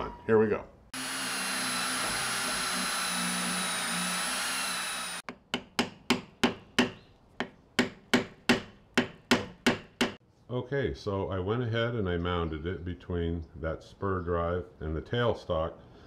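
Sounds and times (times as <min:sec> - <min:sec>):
drill boring into wood: 0:01.0 - 0:05.2.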